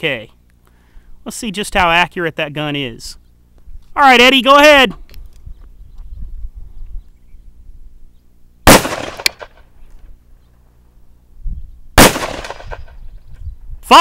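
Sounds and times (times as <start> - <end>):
revolver gunshots: 8.6 - 9.7, 12.0 - 13.0.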